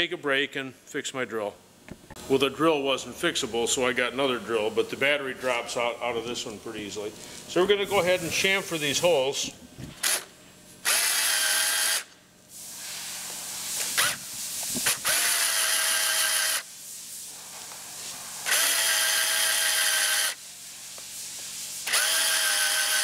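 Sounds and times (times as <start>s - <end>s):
cordless drill whining: 10.0s - 12.1s, 14.8s - 16.7s, 18.4s - 20.4s, 21.8s - 23.0s.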